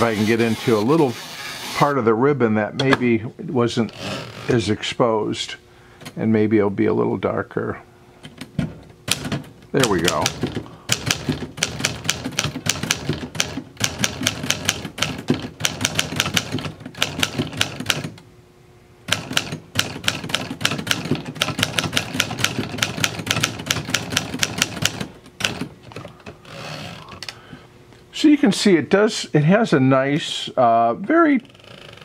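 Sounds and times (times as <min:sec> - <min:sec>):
manual typewriter clacking: 0:09.1 - 0:18.2, 0:19.1 - 0:26.1.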